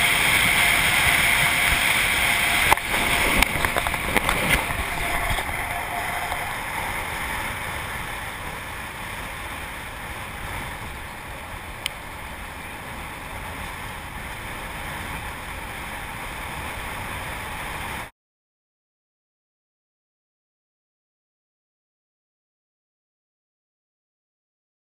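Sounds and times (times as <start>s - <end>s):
tyre noise on dirt road: 0.0s - 15.6s
wind rushing over camera: 0.0s - 18.1s.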